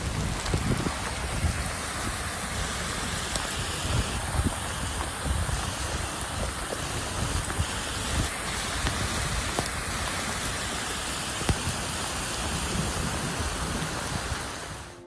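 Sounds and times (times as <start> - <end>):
heavy rain: 0.0 - 15.0
running water: 0.0 - 15.0.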